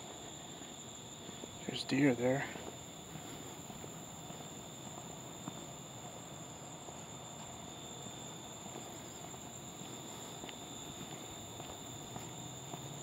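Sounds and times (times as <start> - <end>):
night insects chirping: 0.0 - 13.0.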